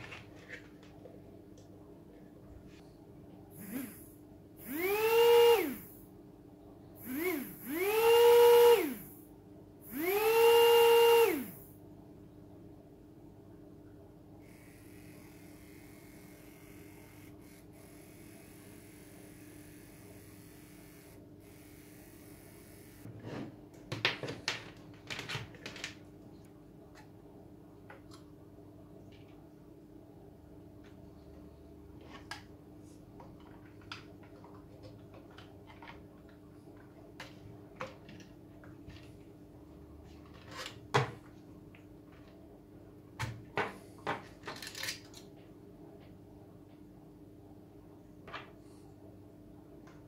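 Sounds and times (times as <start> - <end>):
faint steady hum: 0.0 - 24.0
plastic parts clicking and rattling: 44.1 - 45.4.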